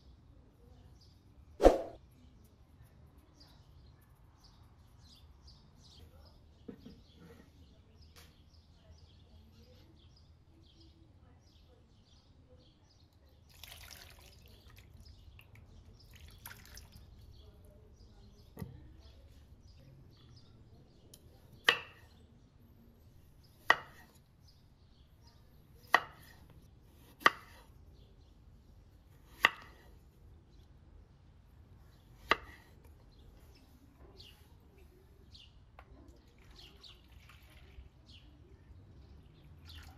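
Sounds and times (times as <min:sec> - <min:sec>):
water pouring into a plastic bowl: 0:13.5 - 0:15.0, 0:16.0 - 0:17.1, 0:36.3 - 0:38.0.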